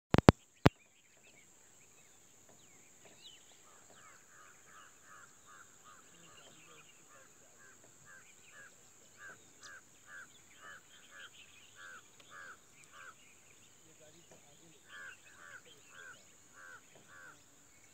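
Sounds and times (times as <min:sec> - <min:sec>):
sharp clicks: 0:00.1 - 0:00.4.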